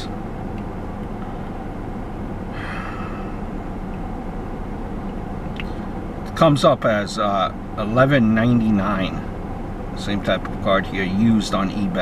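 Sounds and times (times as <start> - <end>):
car cabin hum: 0.0 - 12.0
short breathy sound: 2.5 - 3.6.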